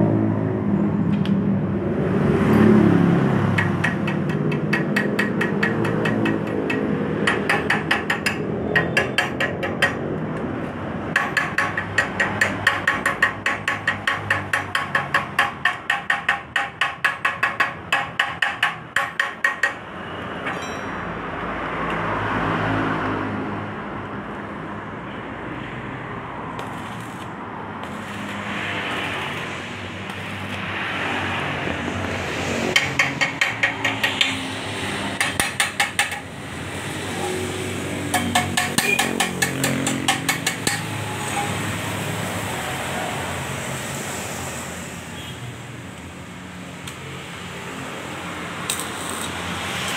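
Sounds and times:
rough steady noise: 3.2s - 22.0s, 26.1s - 44.8s
metal tapping on muffler: 3.5s - 10.5s, 11.1s - 19.8s, 32.6s - 34.5s, 35.2s - 36.4s, 38.1s - 41.0s.

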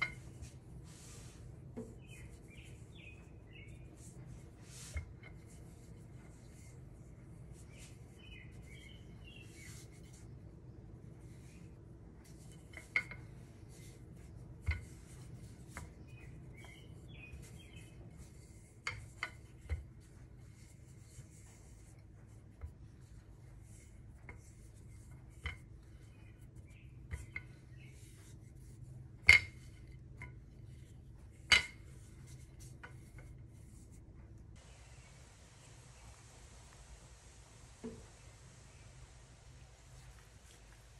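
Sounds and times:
rolling pin rolling dough: 0.0s - 34.6s
steady low hum: 0.0s - 40.9s
faint bird chirps: 16.0s - 18.2s.

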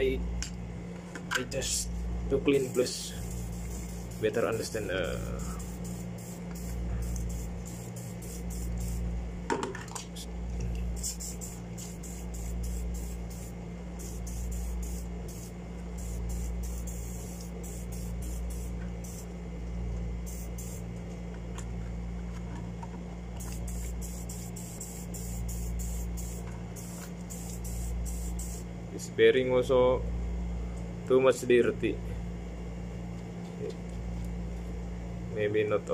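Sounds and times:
low hum: 0.0s - 31.1s
aerosol can spraying: 2.5s - 9.1s, 10.9s - 19.3s, 20.3s - 20.8s, 23.4s - 28.7s.

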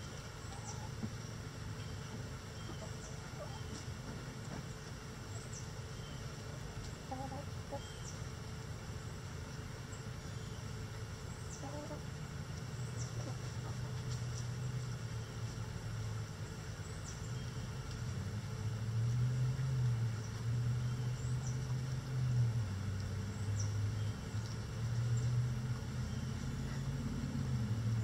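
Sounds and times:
low engine drone: 0.0s - 28.0s.

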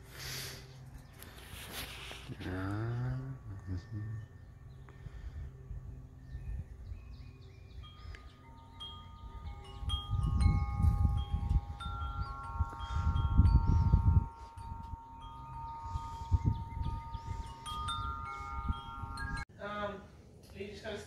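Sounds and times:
wind chimes ringing: 0.9s - 19.9s
low rumbling on microphone: 9.6s - 19.4s.

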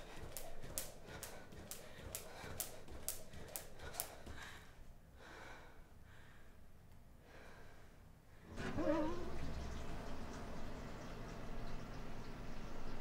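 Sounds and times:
woman breathing softly: 3.8s - 8.5s.

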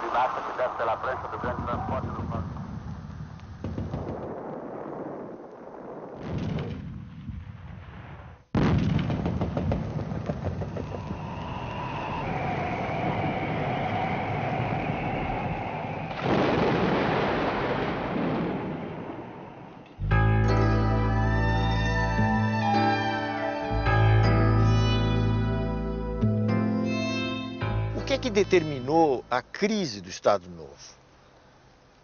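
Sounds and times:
gunfire and artillery fire: 0.8s - 11.3s, 16.1s - 19.9s
slowly falling whine: 10.6s - 20.3s.

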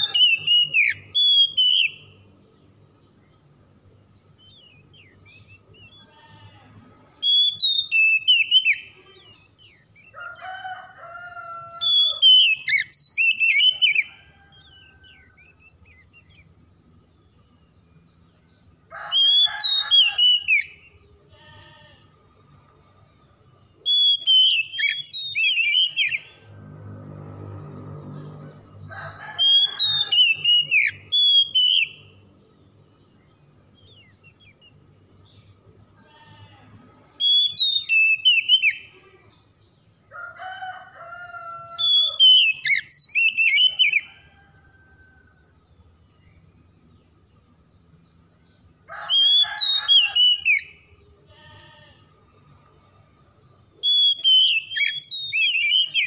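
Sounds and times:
bird singing whistled phrases: 0.0s - 2.1s, 23.9s - 26.2s, 30.0s - 32.1s, 37.2s - 38.8s, 53.8s - 56.0s.

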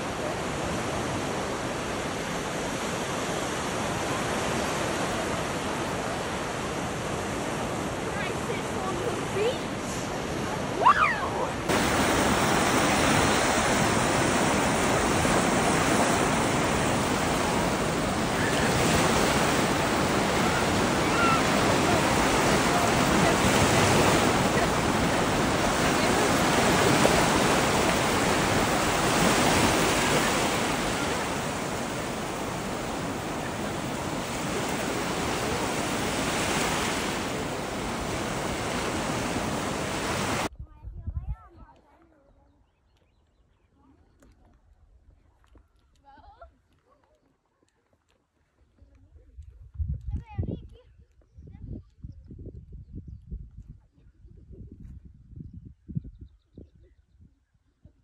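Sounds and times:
surf breaking on beach: 0.0s - 40.5s.

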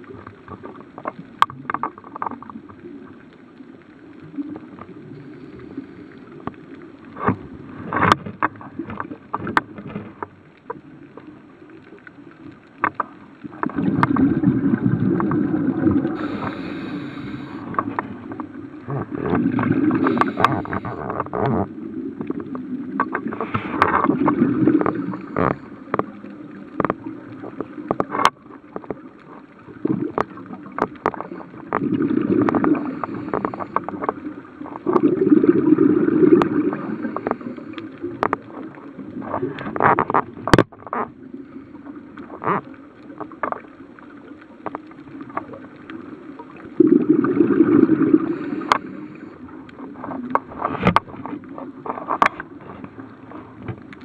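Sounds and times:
sharp clicks and crackles: 0.0s - 35.4s, 36.0s - 41.2s, 41.8s - 46.8s, 47.6s - 54.0s
regulator bubbling exhalation: 13.8s - 18.0s, 18.8s - 21.7s, 35.0s - 37.7s, 46.8s - 49.3s.

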